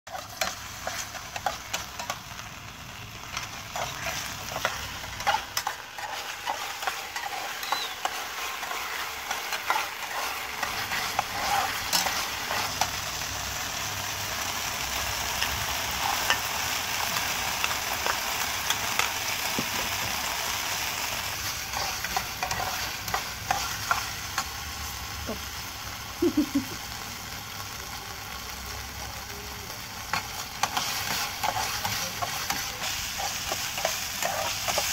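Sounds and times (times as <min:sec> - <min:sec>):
metal spatula scraping a pan: 0:00.1 - 0:02.2, 0:03.3 - 0:13.0, 0:21.4 - 0:24.5, 0:30.1 - 0:34.9
food sizzling in a pan: 0:00.1 - 0:34.9.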